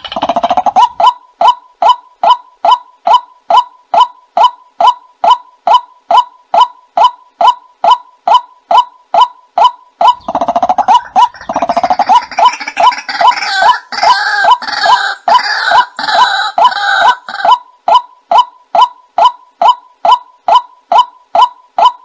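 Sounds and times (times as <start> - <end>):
fast rattling bird call: 0.0 - 1.1, 9.6 - 19.3
bird kwak calls: 0.0 - 22.0
chorus of higher bird calls: 0.0 - 22.0.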